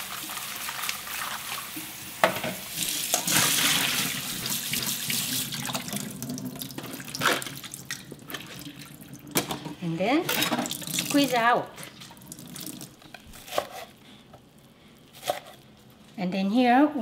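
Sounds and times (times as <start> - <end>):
tap water running into sink: 2.8 - 9.4, 10.6 - 11.3, 11.9 - 13.0.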